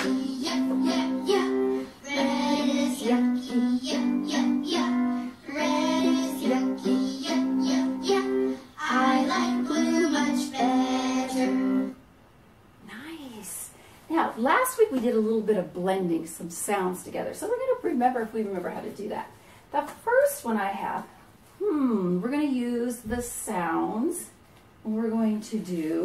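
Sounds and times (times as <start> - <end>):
children's song singing: 0.0 - 12.0.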